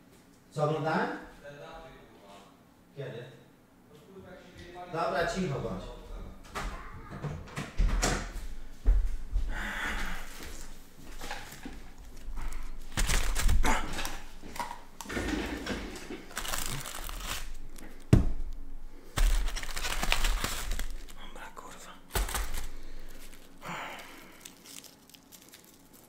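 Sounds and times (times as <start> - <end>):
rustling and crinkling: 10.2 - 26.0
sharp knocks and thuds: 18.0 - 18.4.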